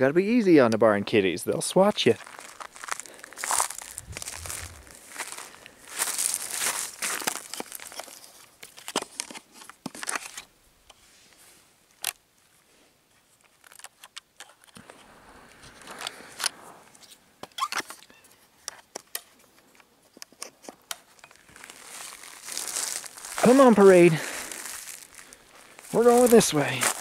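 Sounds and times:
footsteps crunching through dry grass: 1.9 - 8.3, 21.1 - 27.0.

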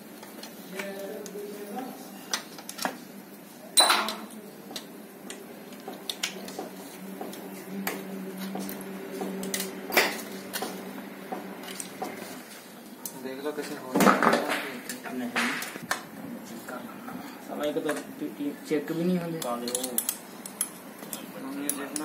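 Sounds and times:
steady low hum: 1.3 - 13.6.

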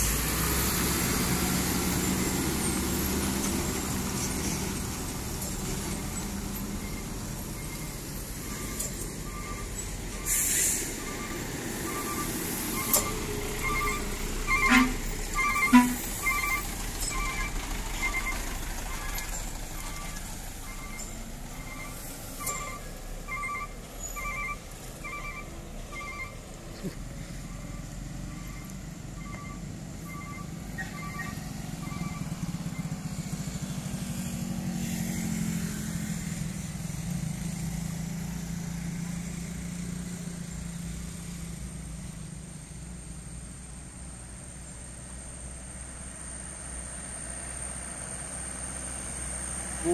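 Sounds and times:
heavy vehicle engine drone: 0.0 - 49.9
truck diesel engine under load: 0.0 - 49.9
electronic beeper: 11.1 - 18.3, 19.8 - 27.0.

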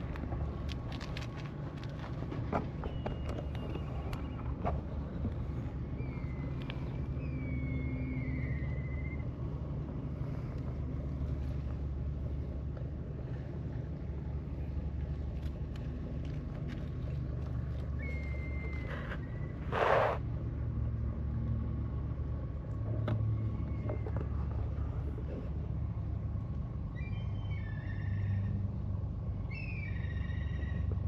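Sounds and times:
engine humming: 0.0 - 31.0
faint wavering whistle: 6.0 - 9.4, 18.0 - 20.2.

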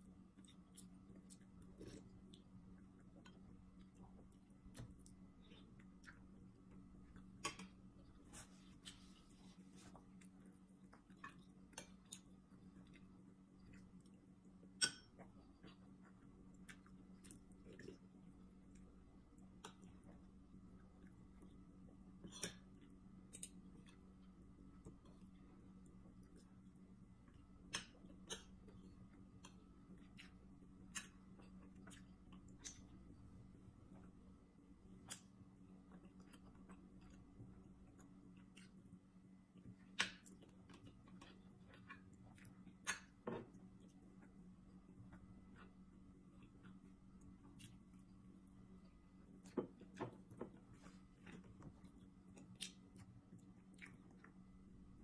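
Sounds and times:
faint steady hum: 0.0 - 55.0
chewing: 0.3 - 21.6, 22.2 - 33.1, 35.0 - 44.4, 45.0 - 48.2, 48.8 - 55.0.

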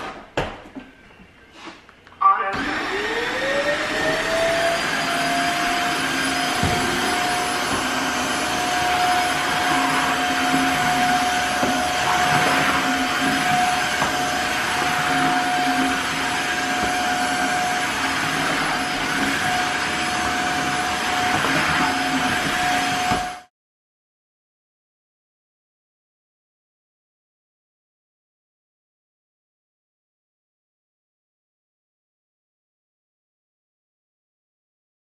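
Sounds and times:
floor cleaner motor whine: 1.1 - 23.5.

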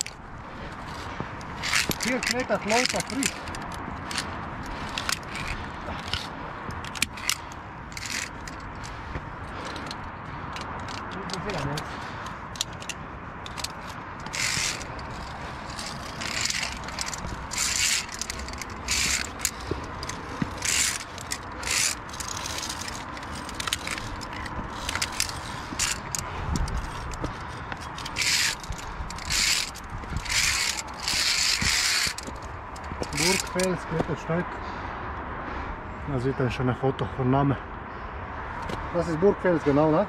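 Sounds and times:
carabiners scraping on steel cable: 0.0 - 34.1.

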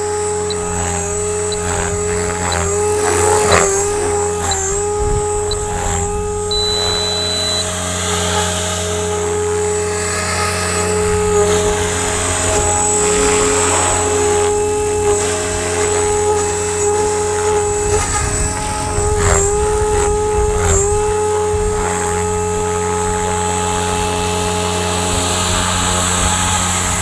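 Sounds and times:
model helicopter rotor whine: 0.0 - 27.0.

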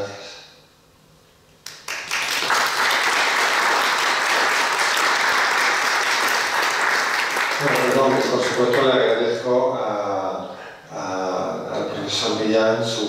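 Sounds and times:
audience applause: 1.7 - 9.2.

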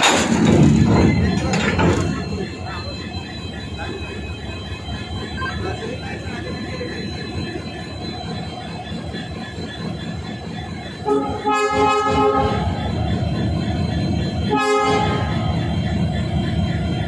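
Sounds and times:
diesel locomotive running: 0.0 - 17.0
train horn blasts: 11.0 - 12.8, 14.4 - 15.4.

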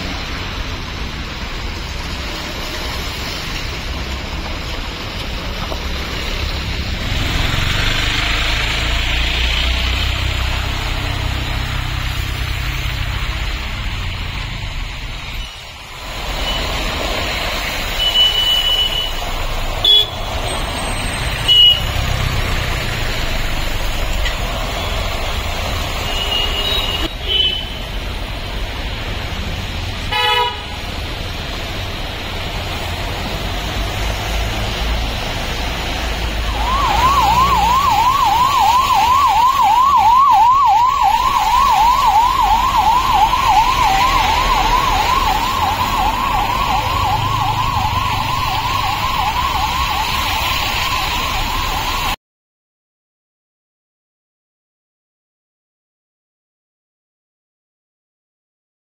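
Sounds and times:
steady traffic: 0.0 - 52.2
ambulance siren wailing: 35.8 - 52.2.

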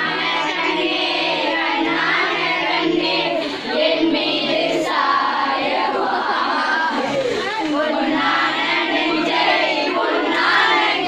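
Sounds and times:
children singing together: 0.0 - 11.0.

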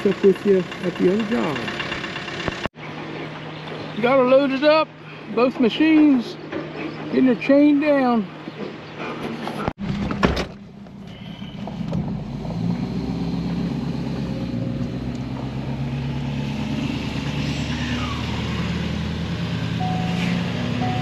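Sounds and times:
vehicle engine and road noise: 0.0 - 21.0.

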